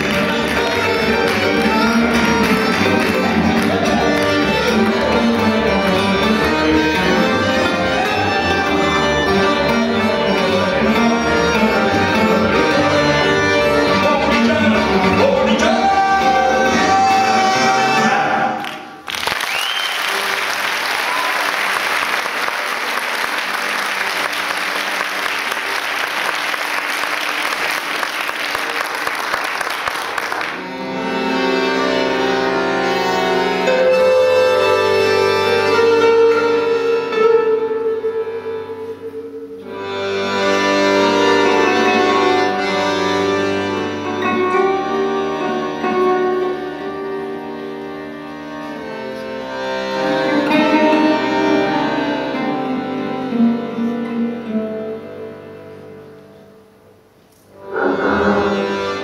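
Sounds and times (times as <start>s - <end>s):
audience applauding: 0.0s - 6.5s, 18.6s - 30.9s
acoustic band playing live: 0.0s - 19.0s, 20.0s - 59.0s
rising whistle: 19.4s - 20.2s.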